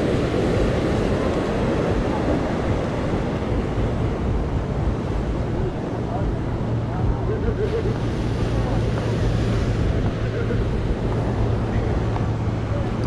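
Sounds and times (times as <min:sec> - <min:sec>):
faint voices: 0:00.0 - 0:13.0
ocean surf: 0:00.0 - 0:13.0
wind buffeting microphone: 0:00.0 - 0:13.0.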